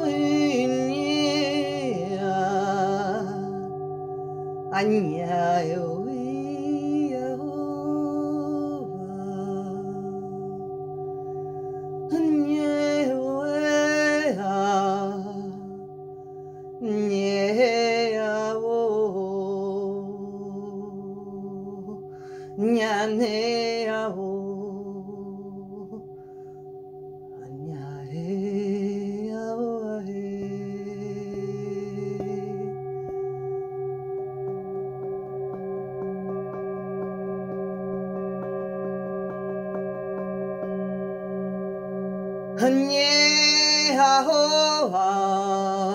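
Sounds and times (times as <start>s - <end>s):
person singing wordless phrases: 0.0s - 3.8s, 4.7s - 10.6s, 12.1s - 15.9s, 16.8s - 26.1s, 27.4s - 32.8s, 42.6s - 45.9s
singing bowls ringing: 0.0s - 45.9s.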